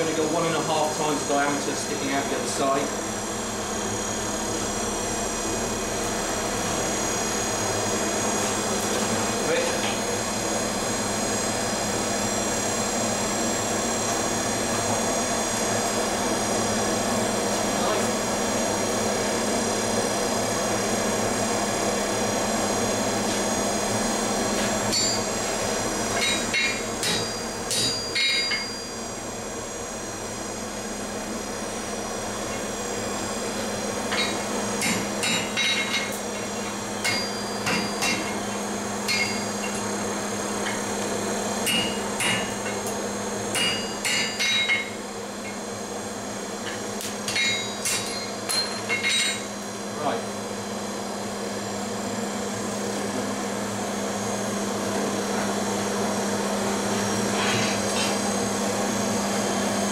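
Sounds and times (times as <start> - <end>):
hammer striking iron on anvil: 24.9 - 25.3, 26.1 - 29.0, 34.1 - 39.9, 41.6 - 45.6, 46.7 - 49.5.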